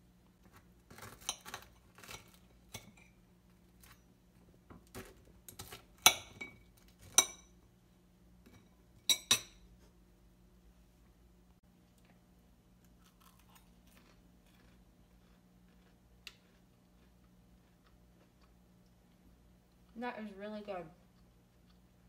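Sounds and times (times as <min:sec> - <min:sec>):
metal fork clinking on a plate: 0:06.0 - 0:07.6, 0:08.5 - 0:09.6.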